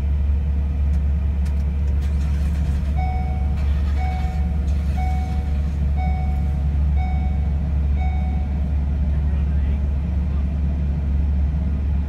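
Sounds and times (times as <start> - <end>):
vehicle engines idling: 0.0 - 12.0
short electronic beep: 3.0 - 8.6.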